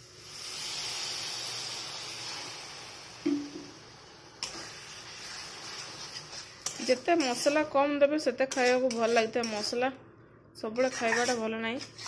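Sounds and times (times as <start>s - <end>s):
water sizzling in hot pan: 0.0s - 7.7s.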